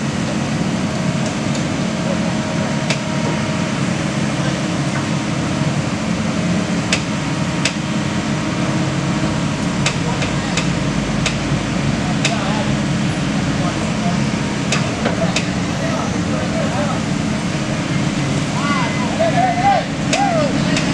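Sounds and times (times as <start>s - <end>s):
excavator diesel engine running: 0.0s - 20.9s.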